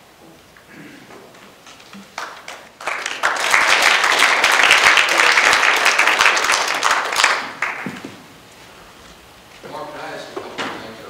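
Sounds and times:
audience applauding: 0:02.0 - 0:08.0.

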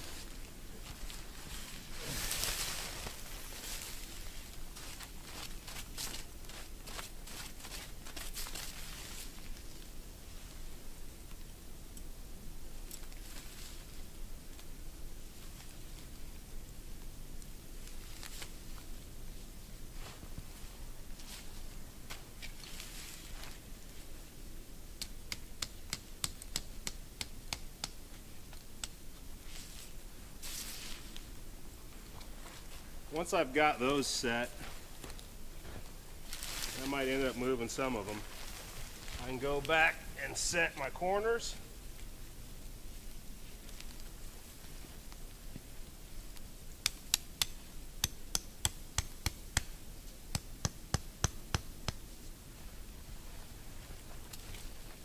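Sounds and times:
tent stake being tapped: 0:25.0 - 0:29.0, 0:46.8 - 0:52.1.

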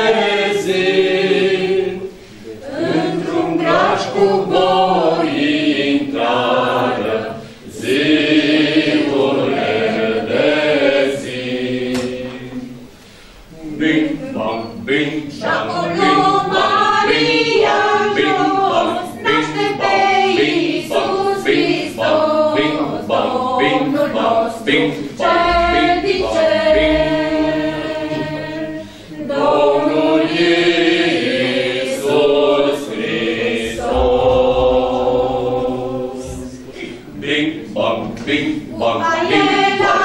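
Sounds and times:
choir singing unaccompanied: 0:00.0 - 0:40.0
singers breathing: 0:02.1 - 0:02.6, 0:07.4 - 0:07.7, 0:12.8 - 0:13.5, 0:28.8 - 0:29.3.

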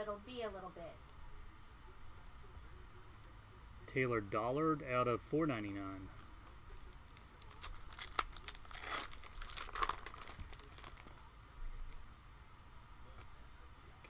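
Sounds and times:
foil wrapper tearing and crinkling: 0:06.7 - 0:11.2.

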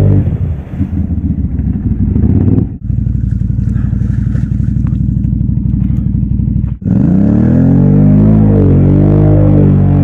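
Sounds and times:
churning through deep mud: 0:00.0 - 0:10.0
atv engine running under load: 0:00.9 - 0:07.1.

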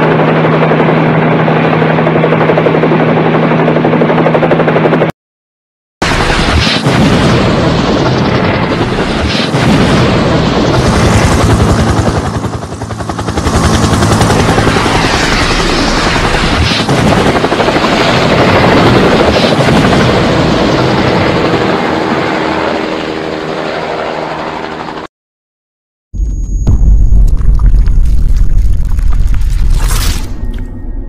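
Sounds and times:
helicopter rotor blade chop: 0:00.0 - 0:05.1, 0:06.0 - 0:25.1.

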